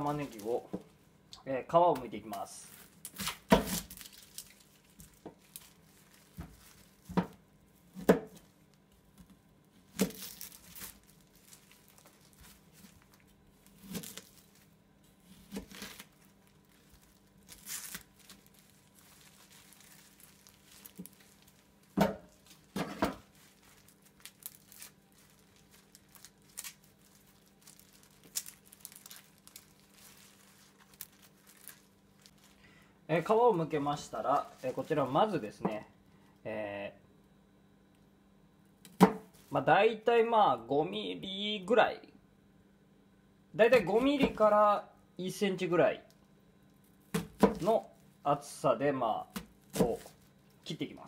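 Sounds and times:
onion skin tearing and crinkling: 0.0 - 0.8, 1.9 - 32.7, 33.5 - 35.2, 46.1 - 48.2, 49.2 - 51.0.

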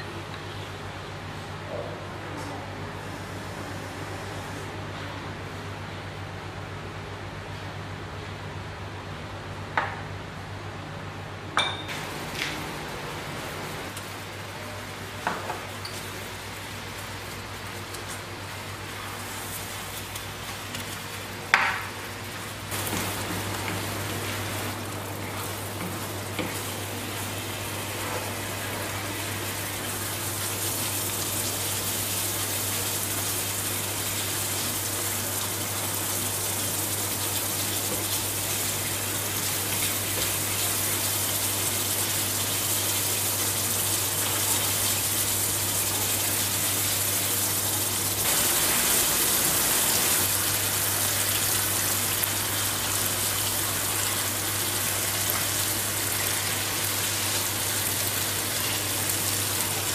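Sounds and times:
curry sizzling and bubbling in pan: 15.0 - 59.9.

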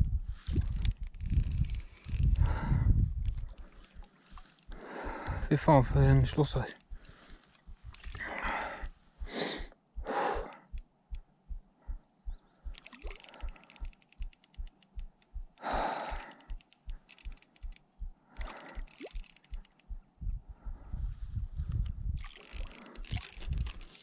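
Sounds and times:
fishing reel gears ticking: 0.5 - 7.2, 10.3 - 11.2, 12.7 - 20.0, 22.2 - 24.0
heavy breathing: 2.0 - 5.5, 6.9 - 10.8, 15.6 - 16.7, 18.2 - 19.0.

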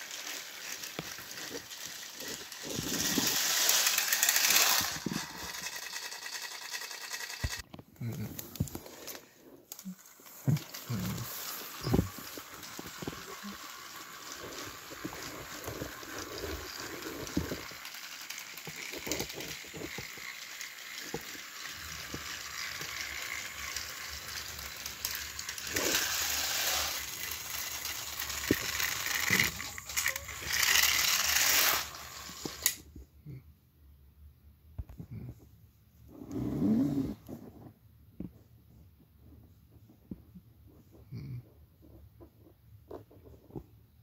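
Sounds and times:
toy wheels rattling on plastic track: 0.0 - 7.7, 8.3 - 32.9
toy train motor whirring: 0.0 - 32.9.

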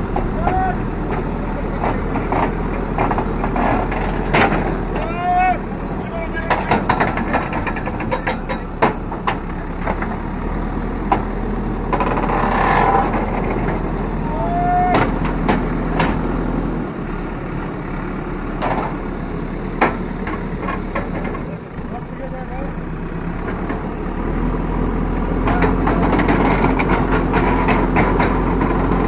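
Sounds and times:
diesel engine running: 0.0 - 29.0
sharp metallic clanks: 6.4 - 10.0.

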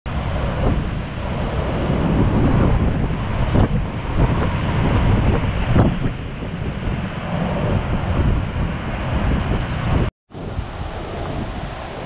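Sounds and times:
wind buffeting microphone: 0.1 - 12.0.

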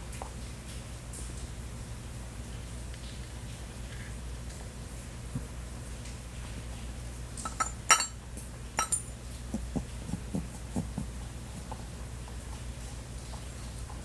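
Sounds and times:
hard objects clinking on tabletop: 7.4 - 8.2, 8.8 - 9.1.

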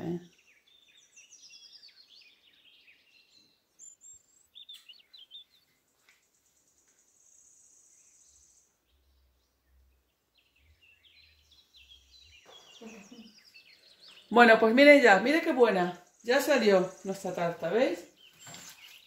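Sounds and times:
faint bird chirping: 0.0 - 19.0
high bird trill: 7.1 - 19.0.

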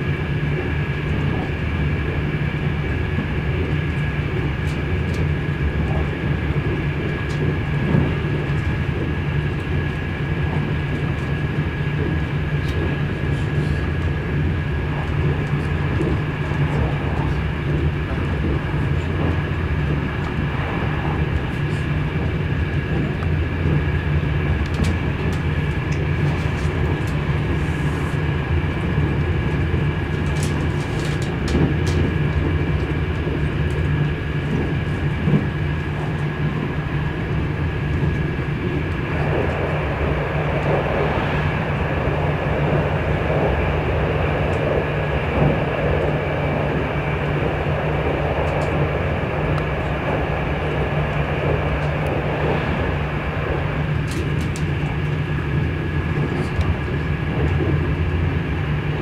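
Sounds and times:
train rumbling: 0.0 - 59.0
loud rushing noise: 38.4 - 56.3.

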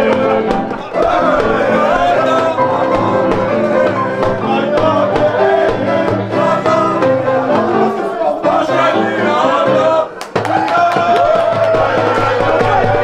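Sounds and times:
steady beat: 0.0 - 9.4, 10.2 - 13.0
acoustic guitar: 0.0 - 10.2
person singing: 0.0 - 13.0.

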